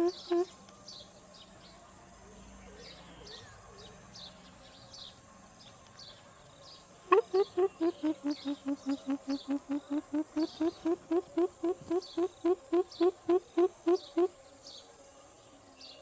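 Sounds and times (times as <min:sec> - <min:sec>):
bird low hooting series: 0:07.1 - 0:14.4
faint high chirps: 0:07.1 - 0:14.4.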